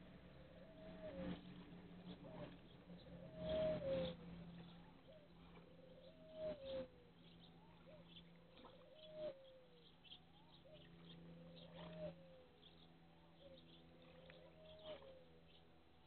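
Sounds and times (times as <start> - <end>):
low hum: 0.0 - 16.0
bird cooing: 3.2 - 12.5, 13.4 - 15.6.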